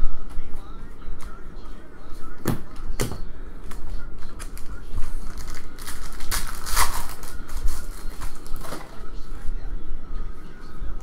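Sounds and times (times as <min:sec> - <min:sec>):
wrapper crinkling and tearing: 0:04.6 - 0:08.8.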